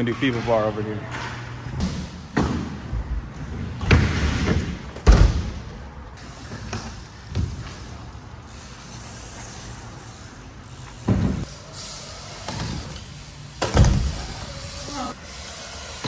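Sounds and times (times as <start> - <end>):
bike thudding on ramp: 1.8 - 8.1, 10.8 - 14.8
bike tyres rumbling: 2.2 - 16.0.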